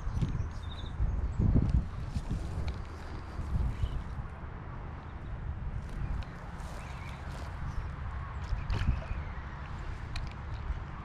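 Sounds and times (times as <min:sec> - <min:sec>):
wind buffeting microphone: 0:00.0 - 0:11.0
light clicks and rustles: 0:01.6 - 0:04.2.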